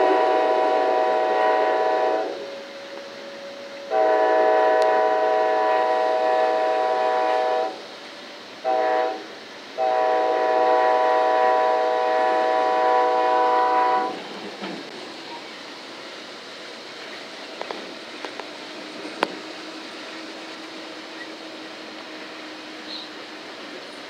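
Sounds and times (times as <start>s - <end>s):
locomotive air horn chord: 0.0s - 7.8s, 8.6s - 14.2s
train wheels rumbling on rails: 0.0s - 24.0s.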